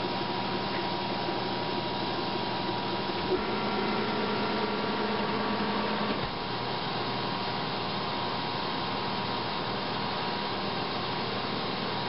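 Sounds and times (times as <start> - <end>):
milling machine cutting metal: 3.2 - 6.5.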